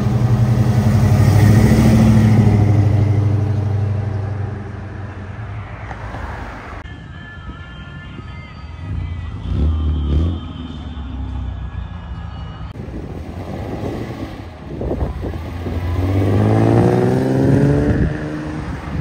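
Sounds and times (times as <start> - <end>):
car accelerating away: 0.0 - 4.6, 15.2 - 19.0
car engine revving: 0.0 - 5.0, 13.2 - 19.0.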